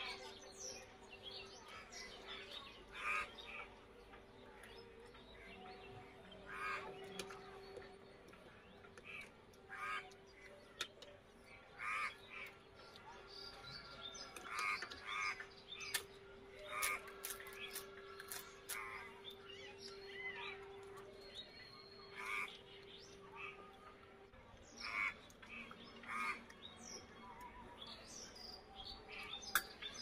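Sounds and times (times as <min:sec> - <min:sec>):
birds calling harshly: 0:00.0 - 0:03.8, 0:05.4 - 0:08.0, 0:09.0 - 0:13.0, 0:14.2 - 0:23.7, 0:24.7 - 0:27.0.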